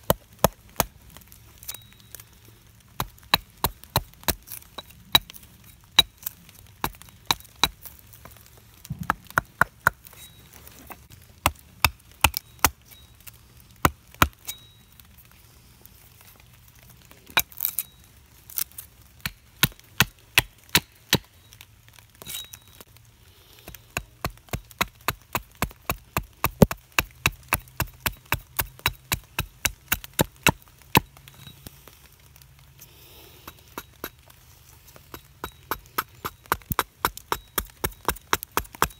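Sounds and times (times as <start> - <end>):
axe chopping wood: 23.7 - 31.1, 35.1 - 38.9.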